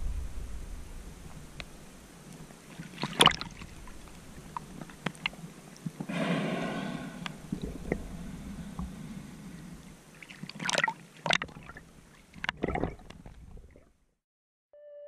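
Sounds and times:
underwater water rushing and bubbling: 0.0 - 14.0
bubbling and knocking bursts: 7.3 - 9.0, 12.4 - 13.8.

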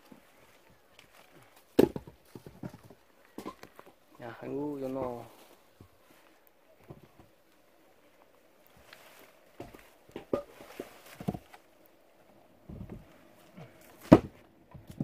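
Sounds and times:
wood knocks and scuffs: 1.0 - 4.0, 8.8 - 11.7, 12.7 - 15.0
leaves rustling: 3.1 - 6.8, 7.4 - 11.9.

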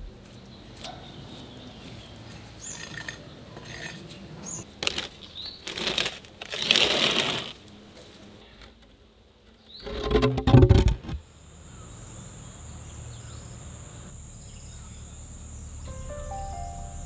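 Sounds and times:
bird chirps: 11.6 - 17.0.

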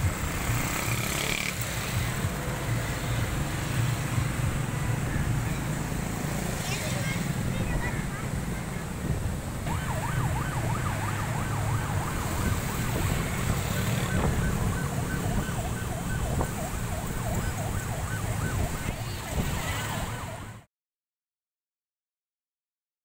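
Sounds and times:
emergency siren wailing: 9.6 - 20.7.

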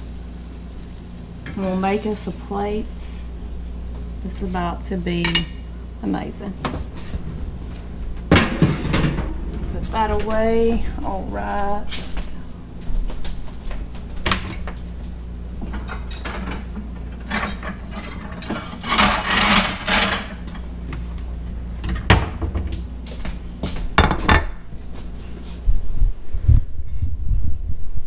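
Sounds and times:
steady low hum: 0.0 - 28.0
dishes rattling clatter: 8.3 - 10.2, 15.7 - 20.6.

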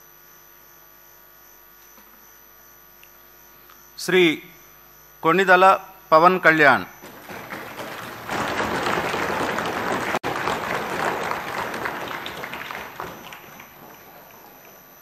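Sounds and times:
hall of people applauding: 7.0 - 15.0.

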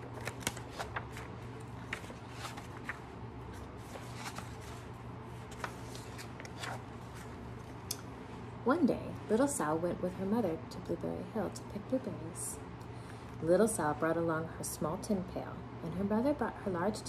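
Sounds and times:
book pages turning: 0.0 - 7.9
low steady hum: 0.0 - 17.0.

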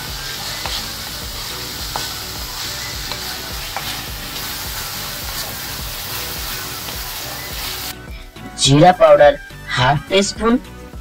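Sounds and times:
food sizzling in a wok: 0.0 - 8.0
spatula knocking and scraping pan: 0.6 - 7.7.

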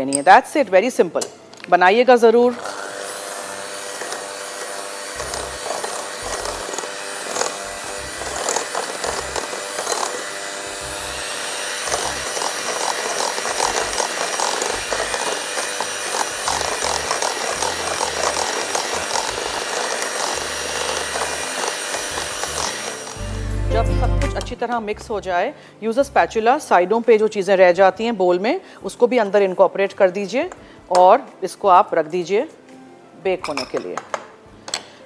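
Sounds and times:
electric hand mixer whirring: 2.5 - 23.8.

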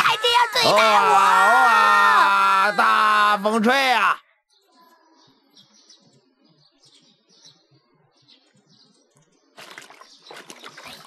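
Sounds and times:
faint birds chirping: 0.0 - 11.0
laundry splashing and scrubbing: 9.6 - 11.0.

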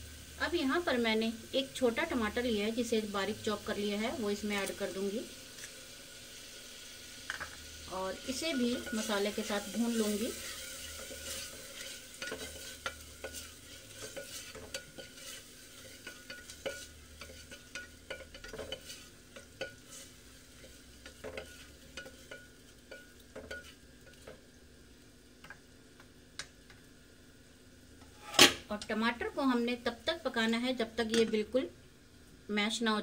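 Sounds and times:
paste sizzling in oil: 0.0 - 32.5
spatula scraping metal pot: 8.3 - 24.3.

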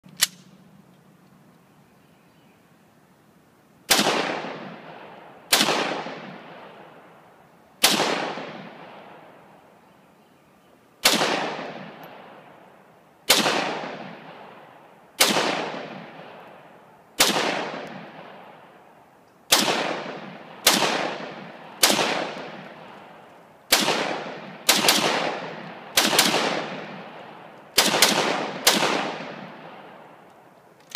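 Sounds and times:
rifle shots with long echo: 3.9 - 9.8, 11.0 - 30.5.

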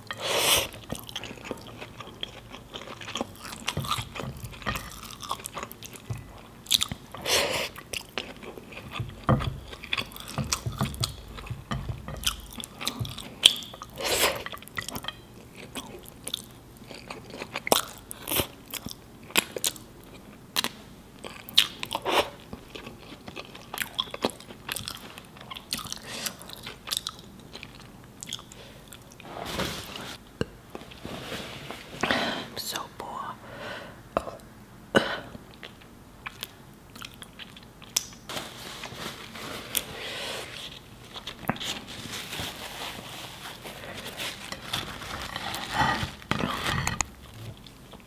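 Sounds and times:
close chewing with crackles: 0.0 - 29.2, 35.5 - 38.3.

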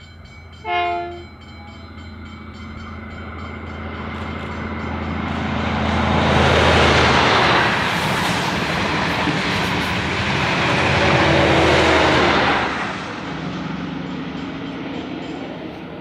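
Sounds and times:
diesel train engine: 0.0 - 16.0
train carriages rolling past: 0.0 - 16.0.

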